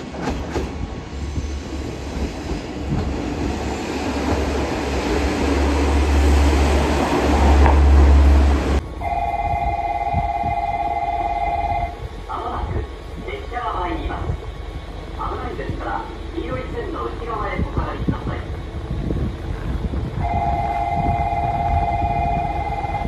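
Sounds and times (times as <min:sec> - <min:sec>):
diesel railcar engine rumble: 0:00.0 - 0:23.0
electronic warning bell ringing: 0:09.0 - 0:11.9, 0:20.3 - 0:23.0.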